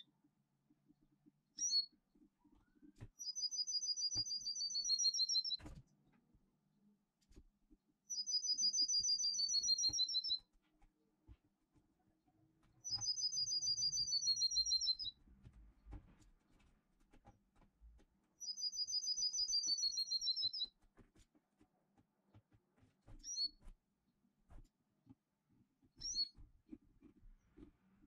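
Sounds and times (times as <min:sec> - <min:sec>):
bird chirp: 0:01.5 - 0:05.6, 0:08.1 - 0:10.5, 0:12.8 - 0:15.2, 0:18.4 - 0:20.7, 0:23.2 - 0:23.6, 0:26.0 - 0:26.4.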